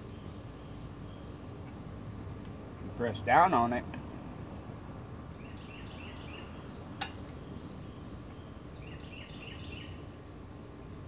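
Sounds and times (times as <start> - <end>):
faint chirping: 0.0 - 11.0
sharp metallic click: 7.0 - 7.4.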